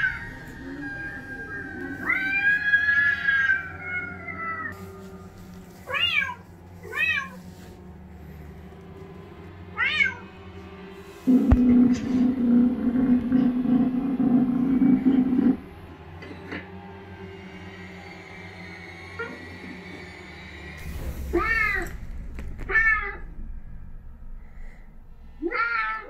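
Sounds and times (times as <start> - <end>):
eerie background music: 0.0 - 26.0
loud low drone: 0.0 - 26.0
cat meowing: 0.8 - 4.7.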